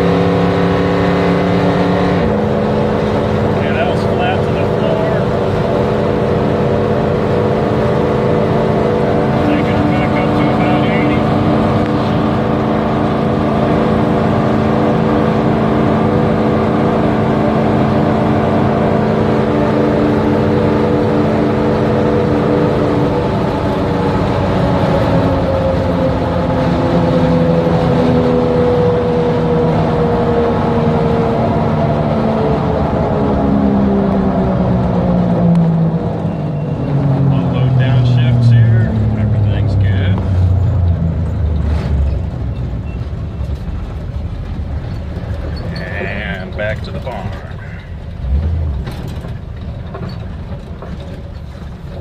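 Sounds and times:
truck engine droning: 0.0 - 52.0.

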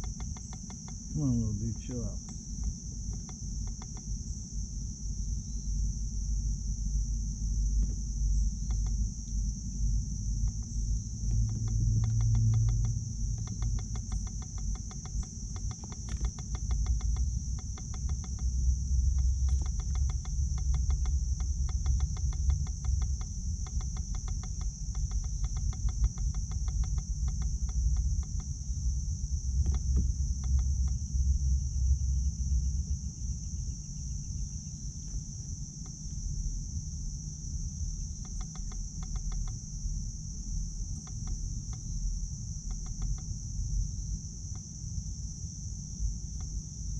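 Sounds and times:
fine regular ticks: 0.0 - 4.1, 8.6 - 9.4, 10.4 - 28.6, 29.6 - 31.0, 38.1 - 39.7, 40.9 - 43.4
crickets chirping: 0.0 - 46.9
low rumble: 1.0 - 46.9.

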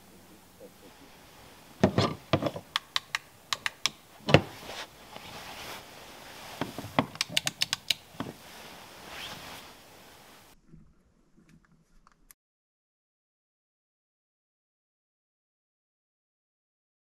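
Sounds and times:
sharp irregular clicks: 2.7 - 4.0, 7.1 - 8.1
sleeping bag rustling: 4.1 - 10.6.

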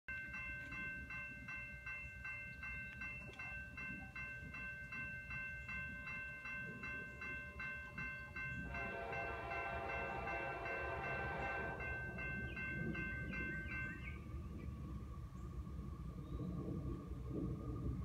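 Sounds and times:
crossing warning bell ringing: 0.1 - 14.3.

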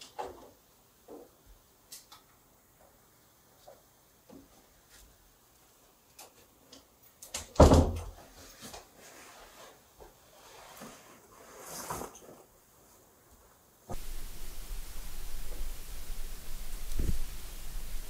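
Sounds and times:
scraping rustle: 8.3 - 12.5.

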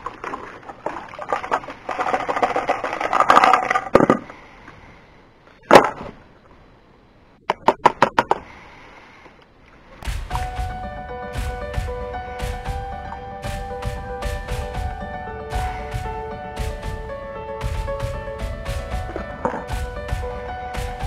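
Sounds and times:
background music: 10.0 - 21.0
plastic tub rapping on pan: 10.0 - 21.0.

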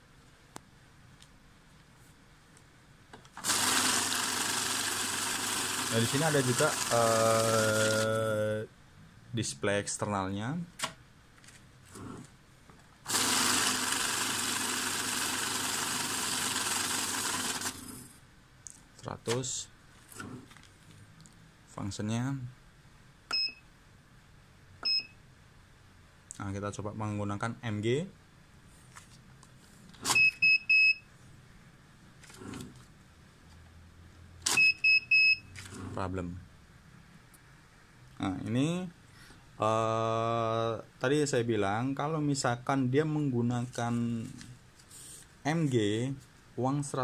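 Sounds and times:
bill counter running banknotes: 3.4 - 8.2, 13.1 - 18.0
short high beeps: 23.3 - 23.6, 34.5 - 35.5.

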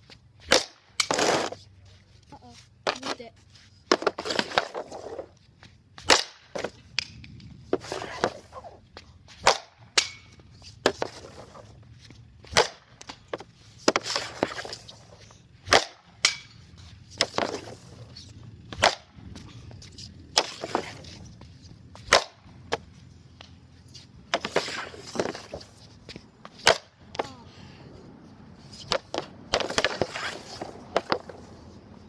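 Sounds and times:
hockey stick cracking on puck: 0.4 - 1.6, 3.9 - 5.2, 6.0 - 8.7, 9.4 - 11.6, 12.5 - 19.2, 19.8 - 21.3, 22.0 - 23.6, 24.2 - 27.3, 28.8 - 31.4
stick knocks and scrapes: 9.4 - 27.2, 28.7 - 31.8.

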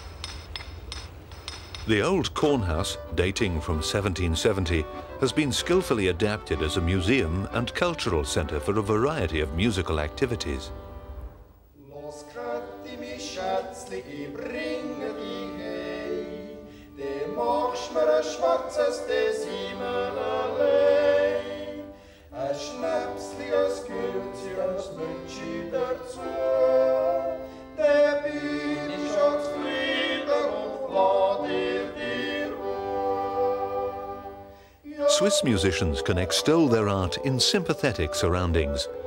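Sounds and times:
accordion: 2.0 - 39.0
men singing in close harmony: 11.8 - 39.0.

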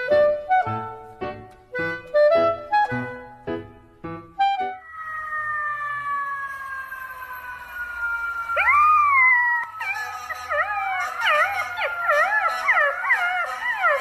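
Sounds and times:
dogs howling: 4.8 - 14.0.

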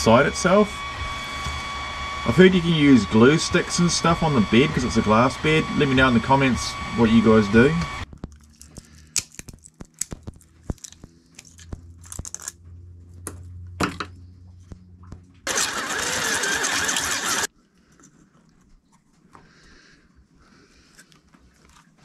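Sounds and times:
cordless drill running: 0.0 - 8.1, 15.5 - 17.5.

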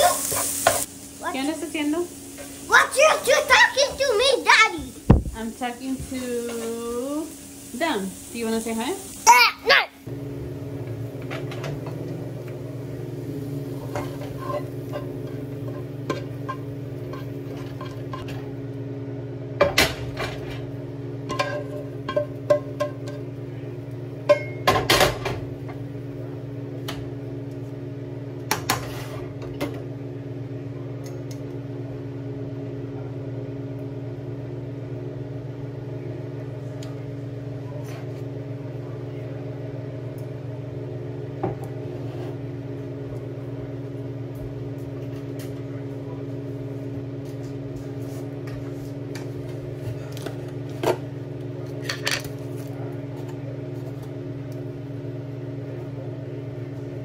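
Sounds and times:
kitchen appliance motor humming: 0.0 - 57.0
pots and utensils clattering: 13.8 - 18.4, 21.2 - 23.4, 24.2 - 25.5.

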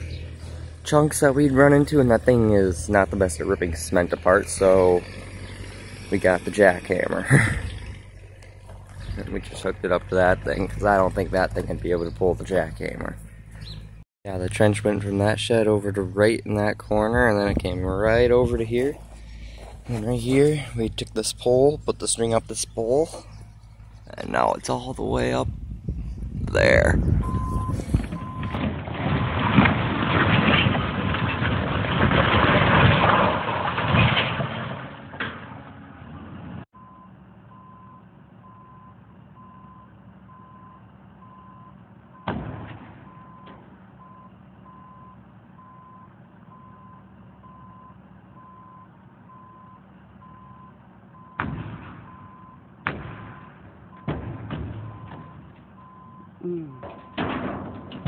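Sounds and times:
machine engine running: 0.0 - 14.0
loud rough rumbling: 0.0 - 36.7, 41.2 - 44.8, 51.2 - 58.0
backup alarm beeping: 27.2 - 28.6, 36.8 - 42.3, 43.1 - 51.4, 52.1 - 52.6, 54.9 - 57.2
sharp bangs and knocks: 27.9 - 36.6, 42.2 - 43.9, 51.4 - 55.8, 56.8 - 58.0.

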